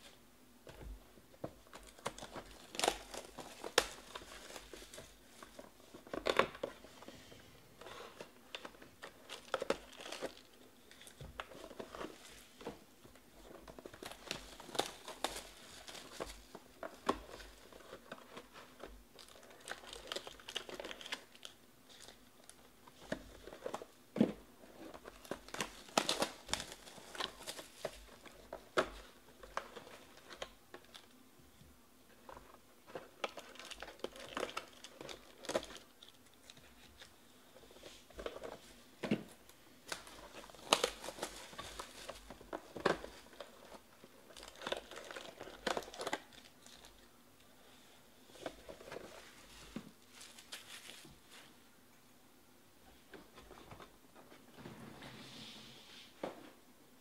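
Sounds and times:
shrink wrap crinkling and tearing: 1.6 - 6.8, 7.8 - 12.7, 13.4 - 24.0, 24.7 - 31.2, 32.2 - 38.7, 39.8 - 51.5.

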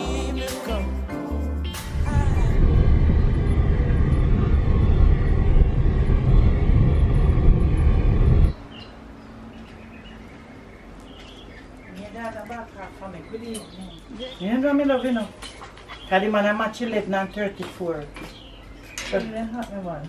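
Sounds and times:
low wind rumble on microphone: 1.8 - 9.0
car road noise: 2.0 - 9.6.

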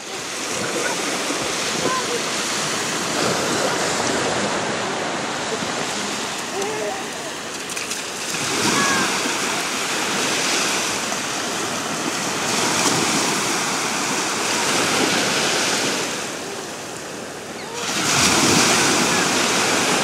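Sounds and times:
small waves breaking on beach: 0.0 - 20.0.

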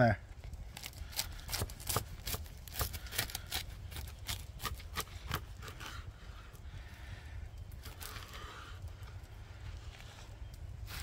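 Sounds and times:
knife crunching through toasted wrap: 0.7 - 6.0.

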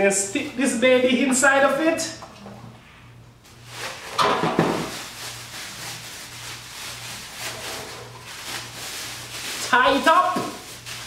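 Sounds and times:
plastic bag rustling and crinkling: 3.6 - 11.0.

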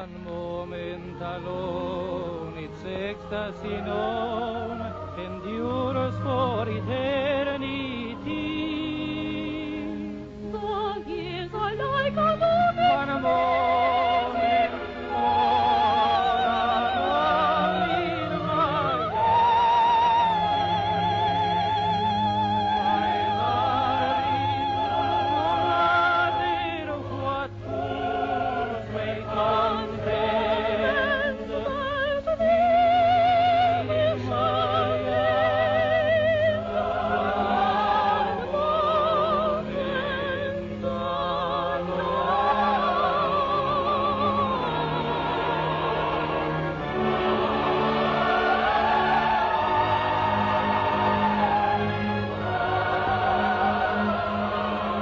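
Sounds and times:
man singing: 0.0 - 10.0
orchestral accompaniment: 0.0 - 55.0
soprano singing: 0.0 - 55.0.

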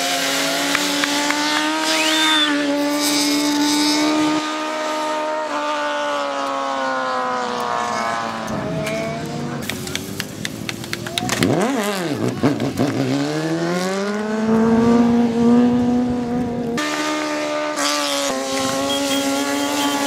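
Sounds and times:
motorcycle engine revving high: 0.0 - 9.6, 11.3 - 20.0.

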